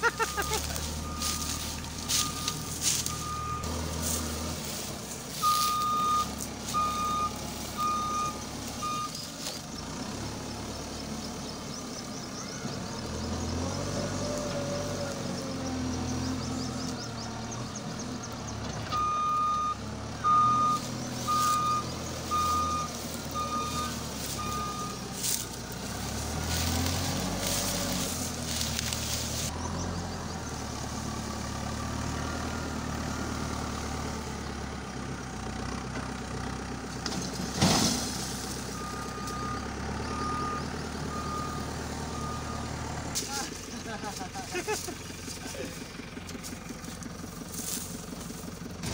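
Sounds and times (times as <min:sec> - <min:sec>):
diesel engine working: 0:00.0 - 0:48.9
reversing alarm beeping: 0:00.2 - 0:03.7, 0:05.4 - 0:09.2, 0:18.9 - 0:25.0, 0:38.7 - 0:42.8.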